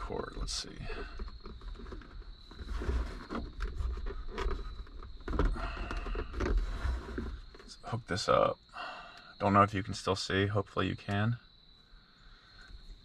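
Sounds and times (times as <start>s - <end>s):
plastic scraping and rustling: 0.8s - 7.9s.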